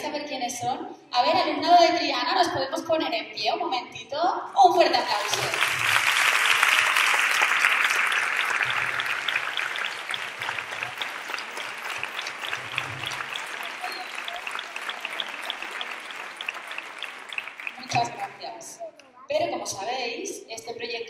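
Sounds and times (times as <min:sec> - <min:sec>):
audience applauding: 0:05.1 - 0:18.4.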